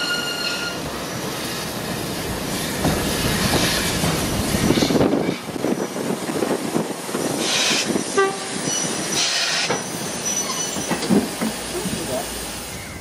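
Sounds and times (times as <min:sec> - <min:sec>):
steam locomotive passing: 0:00.0 - 0:13.0
wheel squeal: 0:08.5 - 0:11.3
wagons rattling and clanking: 0:10.5 - 0:12.2.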